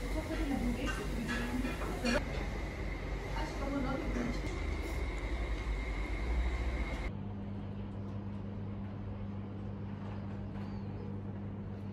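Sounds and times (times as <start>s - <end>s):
low hum: 1.9s - 11.9s.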